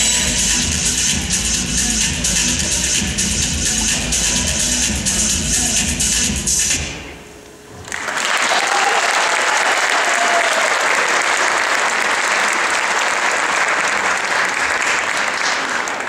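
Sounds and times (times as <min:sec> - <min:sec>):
recorded dance music: 0:00.0 - 0:07.2
audience applause: 0:07.8 - 0:16.0.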